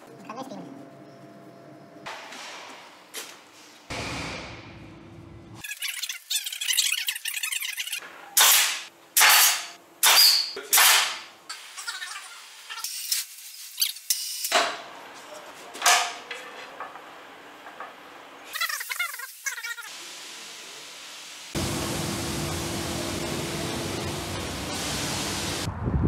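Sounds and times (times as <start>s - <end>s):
workshop tool bursts: 8.4s - 11.3s.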